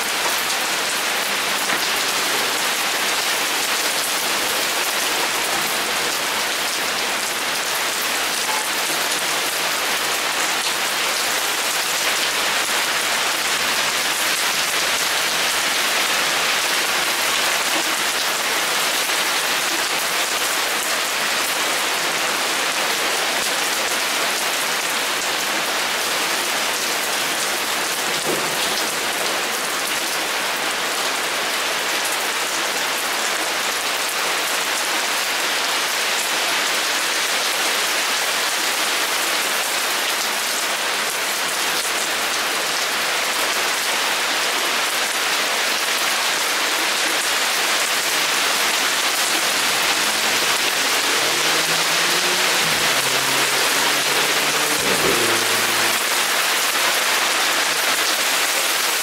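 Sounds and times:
heavy rain pouring: 0:00.0 - 0:59.0.

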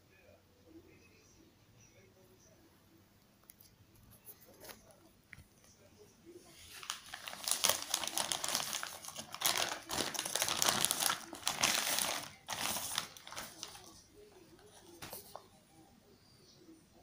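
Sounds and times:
plastic mailer bag crinkling: 0:06.7 - 0:15.4
bag tearing open: 0:06.8 - 0:13.9.

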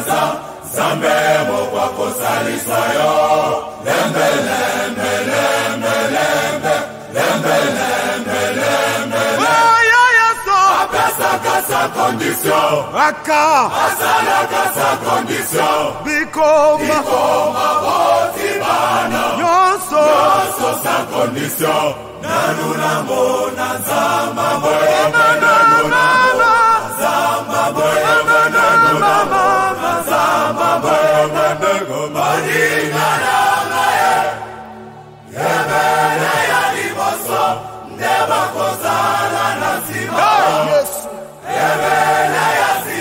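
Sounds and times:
male choir singing: 0:00.0 - 0:43.0
wavering lead voice: 0:12.8 - 0:14.0, 0:24.6 - 0:31.4
low accompanying notes: 0:17.0 - 0:40.2.

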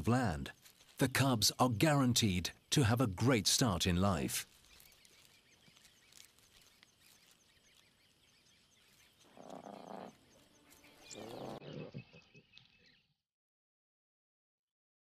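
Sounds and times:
faint high chirping: 0:04.5 - 0:13.1
lions calling: 0:09.2 - 0:10.4, 0:11.0 - 0:12.4.

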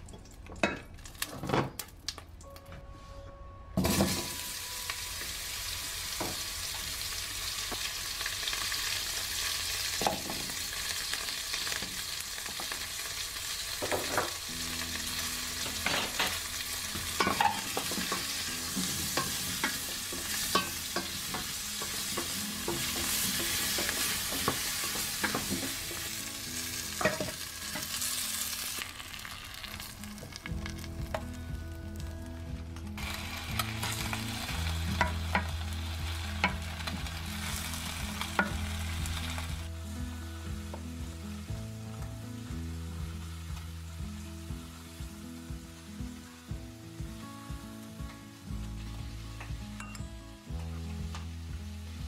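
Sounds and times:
onions sizzling in oil: 0:03.8 - 0:32.3, 0:33.0 - 0:52.0.

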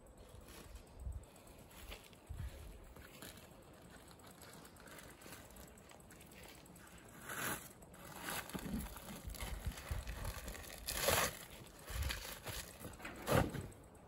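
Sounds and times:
rustling and handling noises: 0:00.0 - 0:14.0.

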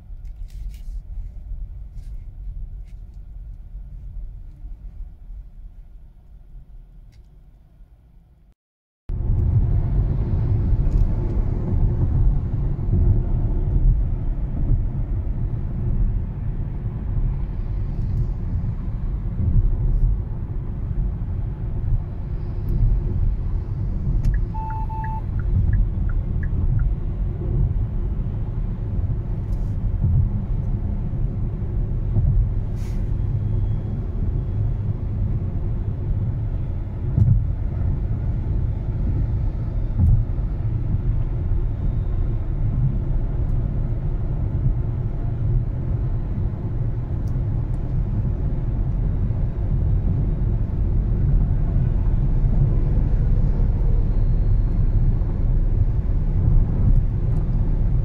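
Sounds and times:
wind noise in car cabin: 0:00.0 - 0:08.3, 0:09.1 - 0:58.0
road and tyre rumble: 0:00.0 - 0:08.5, 0:09.1 - 0:58.0
short beep: 0:24.3 - 0:25.6.

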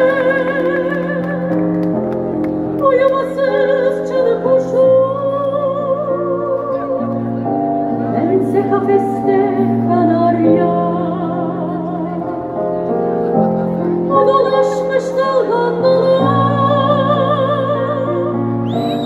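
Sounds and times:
woman singing operatic soprano: 0:00.0 - 0:01.5, 0:02.8 - 0:07.0, 0:08.2 - 0:12.4, 0:14.1 - 0:19.0.

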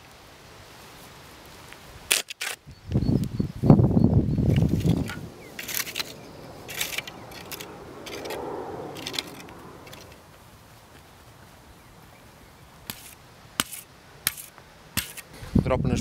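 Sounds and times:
metal rake scraping dry dirt: 0:04.5 - 0:08.4, 0:12.9 - 0:15.4.

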